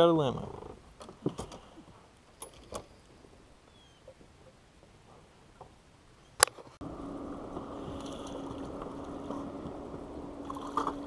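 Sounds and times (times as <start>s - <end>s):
water: 0.0s - 11.0s
wind: 0.0s - 11.0s
boat motor hum: 6.8s - 11.0s.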